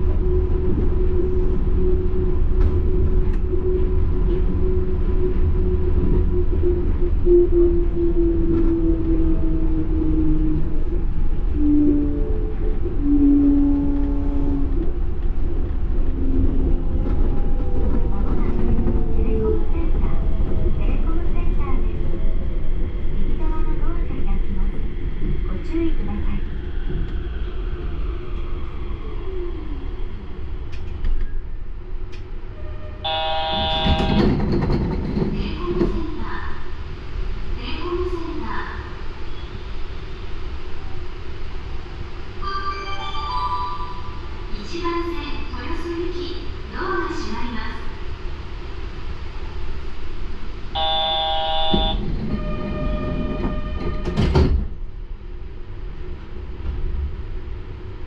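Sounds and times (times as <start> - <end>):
train rumble from inside: 0.0 - 58.0
electronic buzzer tone: 33.1 - 34.2, 50.8 - 52.0.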